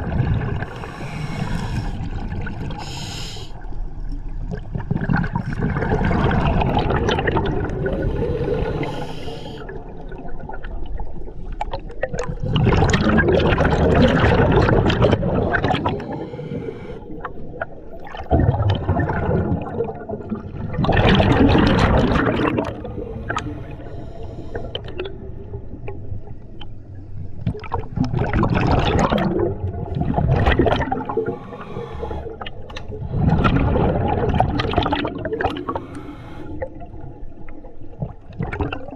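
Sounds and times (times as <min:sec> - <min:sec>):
underwater air bubbles gurgling: 0:00.0 - 0:38.9
breathing hiss through regulator: 0:00.7 - 0:02.1, 0:02.8 - 0:03.7, 0:07.9 - 0:09.8, 0:16.0 - 0:17.1, 0:23.2 - 0:24.8, 0:31.1 - 0:32.4, 0:35.6 - 0:36.7.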